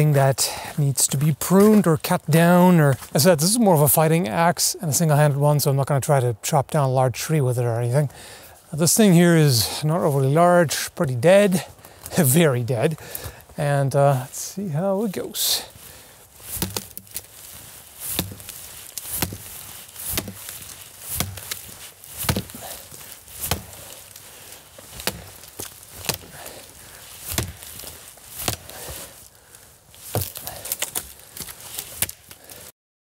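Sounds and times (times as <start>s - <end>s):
axe chopping dead wood: 16.4s - 29.2s, 29.9s - 32.4s.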